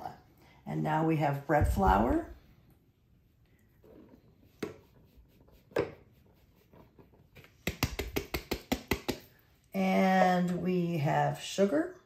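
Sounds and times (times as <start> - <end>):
hand tapping plastic bowl: 7.4 - 9.3.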